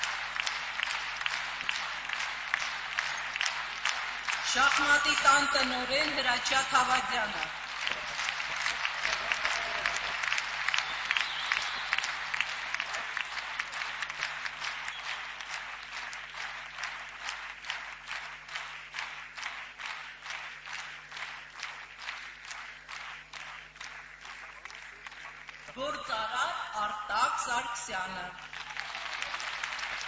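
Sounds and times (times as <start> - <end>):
audience applauding: 0.0 - 26.0, 28.3 - 30.0
rhythmic clapping in unison: 0.0 - 26.2, 28.2 - 30.0.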